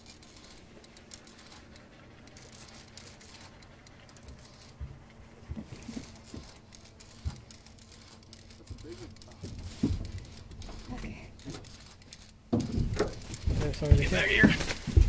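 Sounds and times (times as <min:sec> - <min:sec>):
soft low knocks: 0:01.3 - 0:15.0
light ticks: 0:05.8 - 0:15.0.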